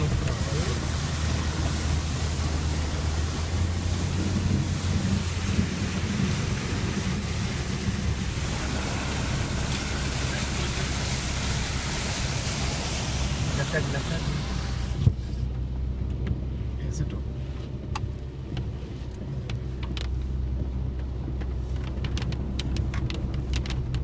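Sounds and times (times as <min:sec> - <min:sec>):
wind buffeting microphone: 0:00.0 - 0:13.6
low vehicle rumble: 0:00.0 - 0:24.0.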